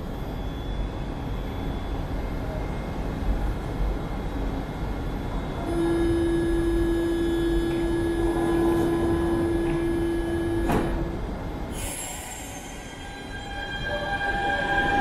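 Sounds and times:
low hum of train: 0:00.0 - 0:15.0
train door warning tone: 0:05.0 - 0:15.0
sliding doors shutting: 0:08.3 - 0:11.2.

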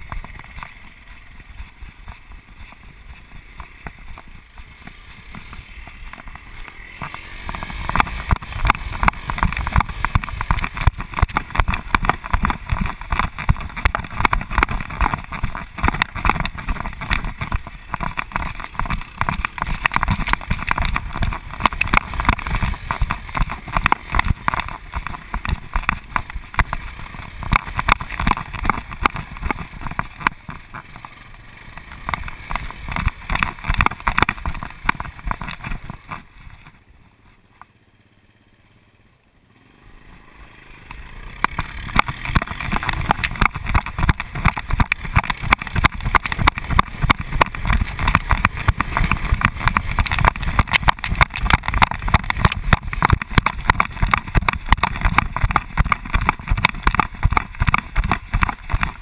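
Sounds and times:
camera handling knocks and rubbing: 0:31.8 - 0:36.8, 0:41.5 - 0:59.0.

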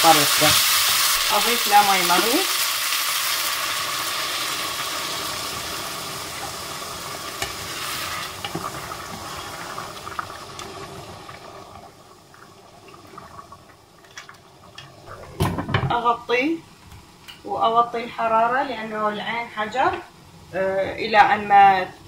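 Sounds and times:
loud sizzling hiss: 0:00.0 - 0:12.3.

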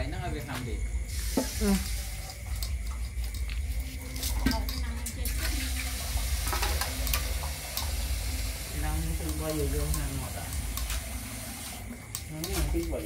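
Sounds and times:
dog chewing and lapping: 0:01.8 - 0:11.1
teeth clicking against metal bowl: 0:02.1 - 0:05.2, 0:06.6 - 0:08.0, 0:09.1 - 0:10.9, 0:12.0 - 0:13.0.

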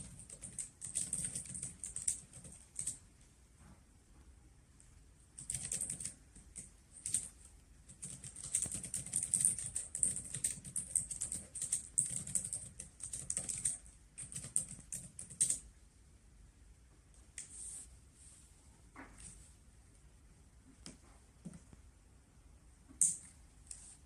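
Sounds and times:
typing on laptop keyboard: 0:00.0 - 0:03.0, 0:05.4 - 0:15.7.

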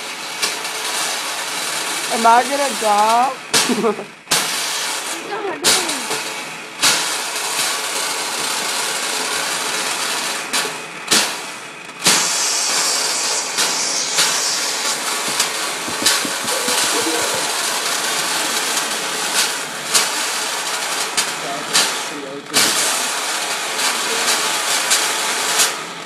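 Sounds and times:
gas rushing hiss: 0:04.3 - 0:25.7
sharp knocks: 0:13.8 - 0:18.1.

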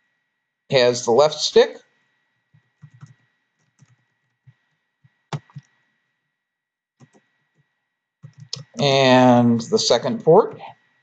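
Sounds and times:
keyboard keys tapping: 0:02.6 - 0:05.7, 0:07.0 - 0:07.6, 0:08.2 - 0:08.9.

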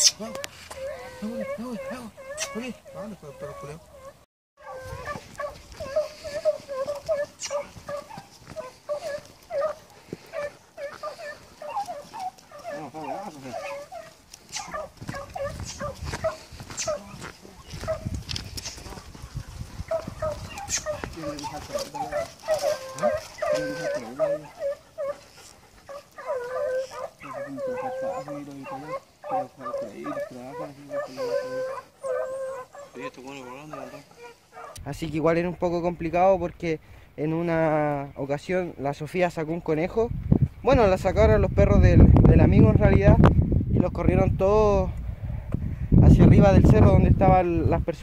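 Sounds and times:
hounds baying: 0:00.0 - 0:35.1.

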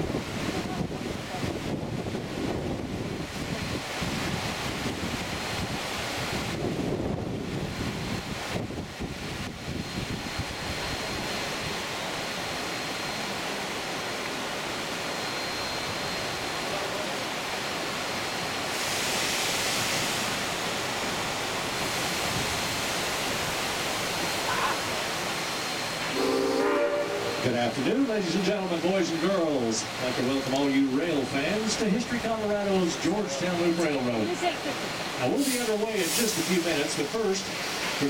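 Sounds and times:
creek rushing over rapids: 0:15.8 - 0:38.0
steam locomotive whistle: 0:26.1 - 0:27.7.

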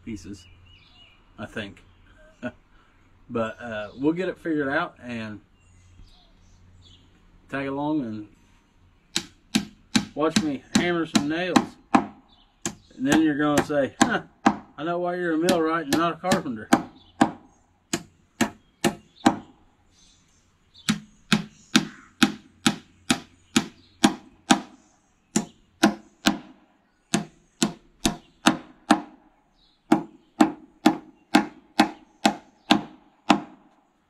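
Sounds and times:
hammer knocking nails into wood: 0:09.1 - 0:14.7, 0:15.4 - 0:19.5, 0:20.8 - 0:29.2, 0:29.9 - 0:33.6.

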